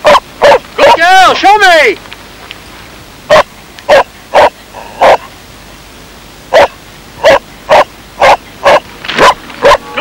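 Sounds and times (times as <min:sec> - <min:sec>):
dog barking: 0:00.0 - 0:00.6, 0:03.3 - 0:05.3, 0:06.5 - 0:10.0.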